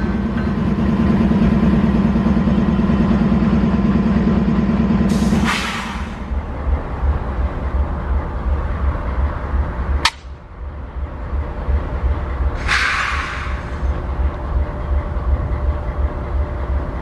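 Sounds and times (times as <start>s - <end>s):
locomotive engine idling: 0.0s - 17.0s
short burst of hiss: 12.6s - 13.9s.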